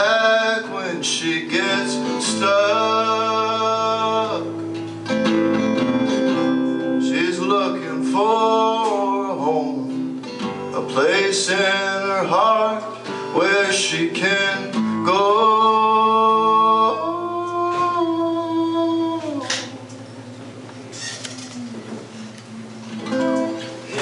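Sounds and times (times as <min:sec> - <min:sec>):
man singing: 0:00.0 - 0:04.6, 0:05.5 - 0:19.9
strummed acoustic guitar: 0:00.0 - 0:24.0.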